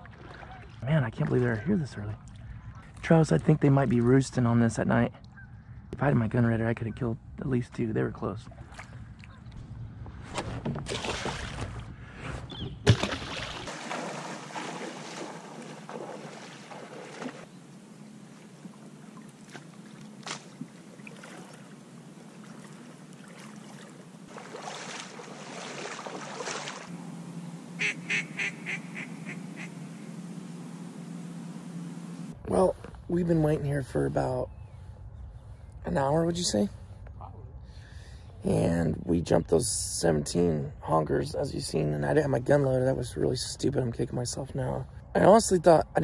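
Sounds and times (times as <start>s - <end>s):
water and kayak handling: 7.7s - 33.5s
goose honks: 27.8s - 29.8s.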